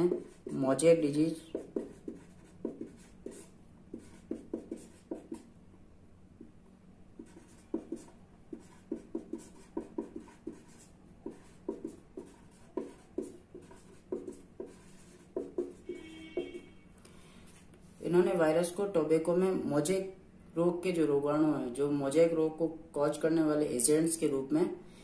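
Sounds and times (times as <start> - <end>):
marker pen writing on paper: 0.0 - 5.5, 7.2 - 16.8.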